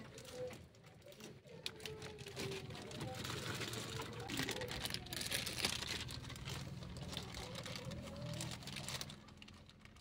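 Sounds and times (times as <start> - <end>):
plastic bag crinkling: 2.0 - 10.0.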